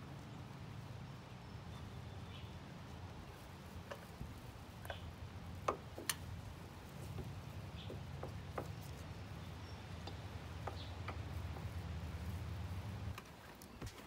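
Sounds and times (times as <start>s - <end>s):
oil filter clicks and taps: 5.6s - 6.2s.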